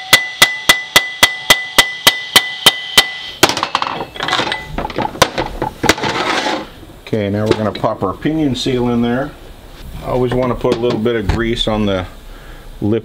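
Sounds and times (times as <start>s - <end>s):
hammer striking steel: 0.0s - 6.0s
loose metal parts clinking: 3.4s - 6.7s.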